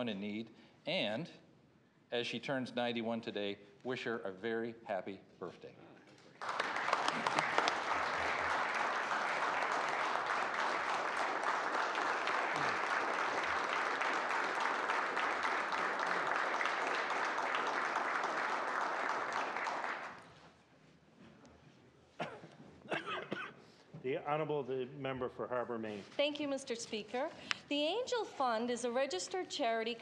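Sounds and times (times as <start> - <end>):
crowd applauding: 6.4 - 20.3.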